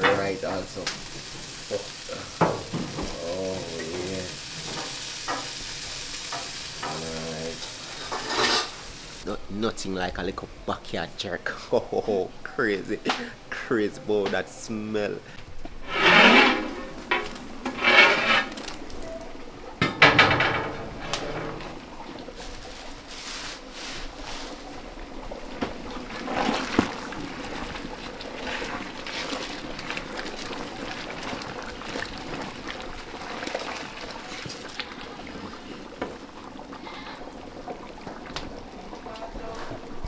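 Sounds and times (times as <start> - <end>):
stew sloshing while stirred: 22.1 - 39.9.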